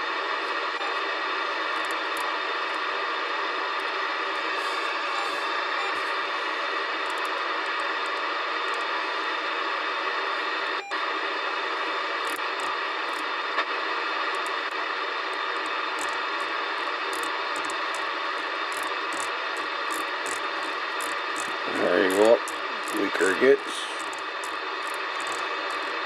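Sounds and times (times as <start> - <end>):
radio receiver hiss: 0.0 - 26.0.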